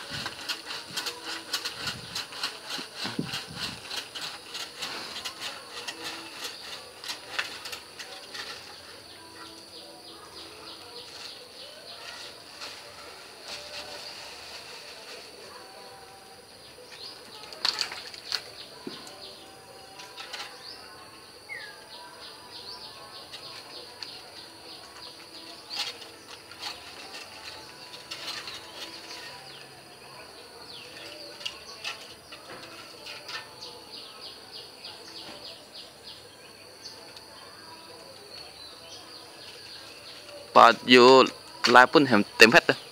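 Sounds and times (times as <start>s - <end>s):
faint insect drone: 0.0s - 42.9s
small birds chirping: 15.9s - 42.9s.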